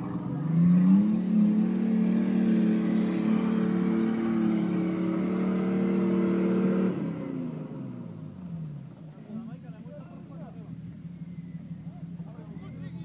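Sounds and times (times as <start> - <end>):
engine at high revs: 0.0 - 8.7.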